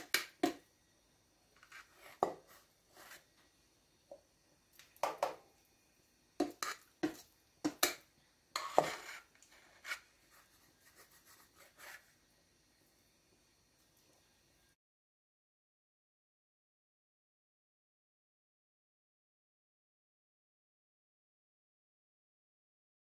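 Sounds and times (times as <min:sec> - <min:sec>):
metal spoon scraping steel bowl: 0:06.4 - 0:07.9, 0:08.6 - 0:10.1.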